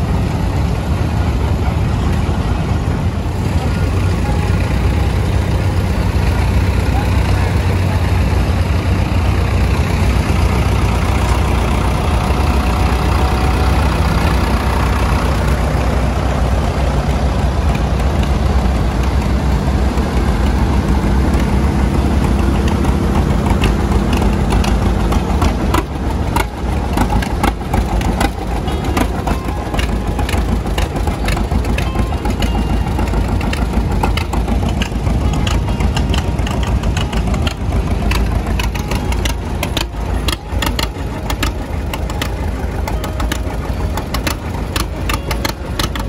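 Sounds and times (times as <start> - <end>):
tractor engines rumbling: 0.0 - 46.0.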